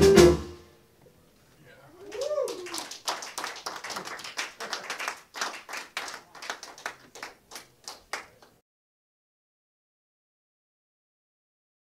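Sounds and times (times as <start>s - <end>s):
audience applauding: 2.0s - 8.6s.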